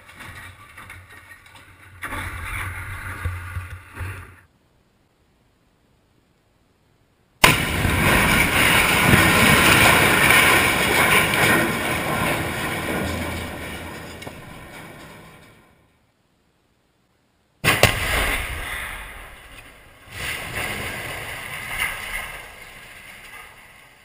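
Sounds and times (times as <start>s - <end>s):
steel structure crashing down: 0.0s - 4.4s, 7.4s - 15.8s, 17.6s - 24.0s
loud explosive blast: 7.4s - 11.5s, 17.6s - 21.5s.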